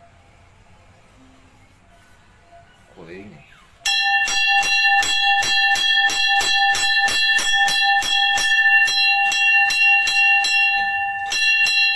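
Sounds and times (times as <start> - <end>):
bell rung rapidly: 3.9 - 11.9.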